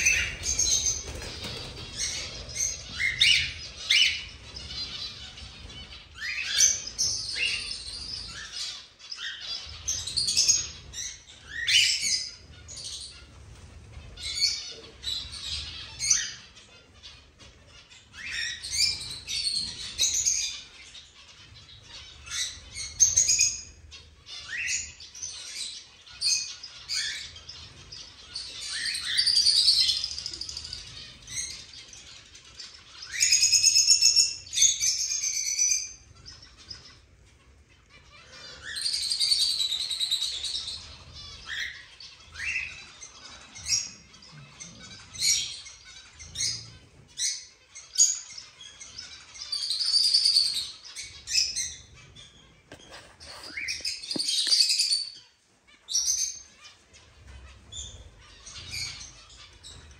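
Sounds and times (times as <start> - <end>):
cage birds chirping and calling: 0.0 - 59.9.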